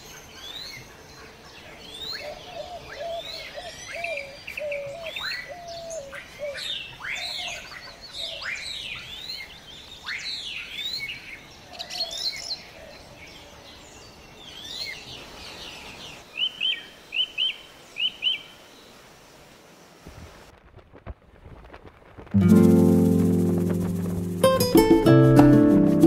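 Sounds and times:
wild birds singing and calling: 0.0 - 19.1.

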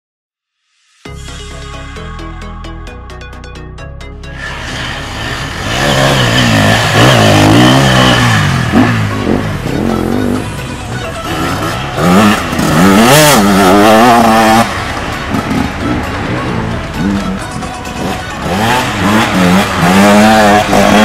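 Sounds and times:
dirt bikes revving past: 4.4 - 21.0.

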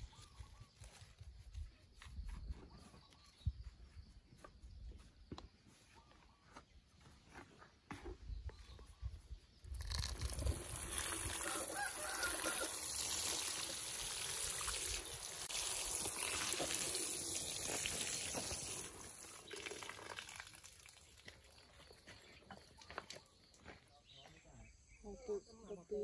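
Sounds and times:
water spraying onto plant: 9.7 - 21.6.

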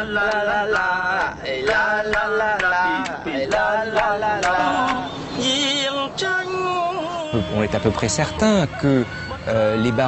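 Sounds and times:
sharp rhythmic taps: 0.2 - 5.0.

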